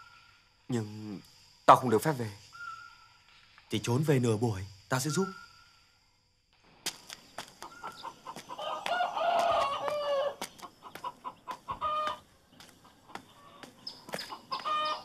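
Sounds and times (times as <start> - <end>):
chicken clucking: 7.6 - 15.0
rooster crowing: 7.8 - 10.4, 11.7 - 12.2.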